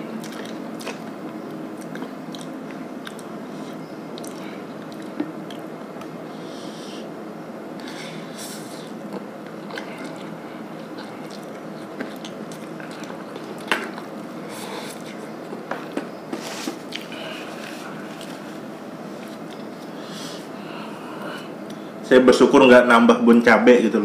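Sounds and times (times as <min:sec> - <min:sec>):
person chewing: 0:00.1 - 0:06.2, 0:07.8 - 0:18.6.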